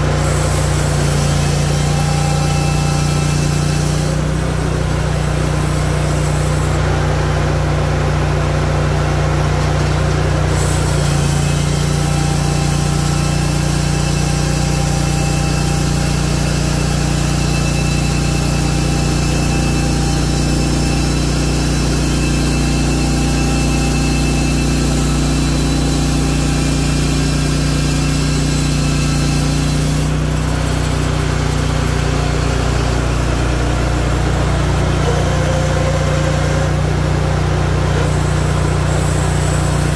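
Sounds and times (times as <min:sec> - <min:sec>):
band blade cutting log: 0:00.0 - 0:04.4
sawmill engine running: 0:00.0 - 0:39.9.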